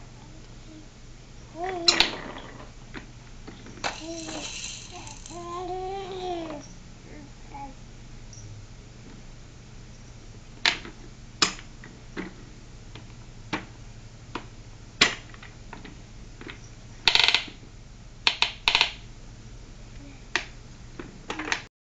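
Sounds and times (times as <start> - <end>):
plastic toy clacks and rattles: 3.8 - 5.7.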